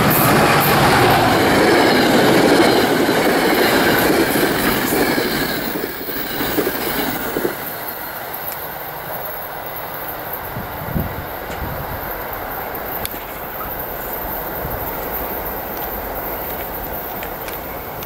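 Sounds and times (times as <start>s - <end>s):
train passing at speed: 0.0s - 18.0s.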